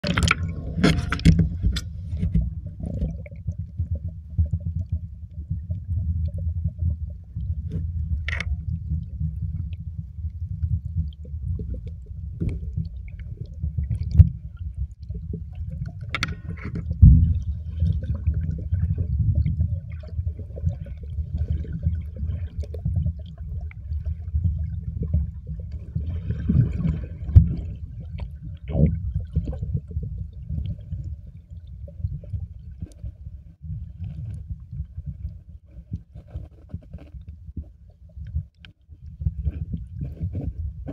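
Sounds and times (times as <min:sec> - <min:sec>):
muffled underwater rumble: 0:00.0 - 0:40.9
faint crackles: 0:32.0 - 0:40.9.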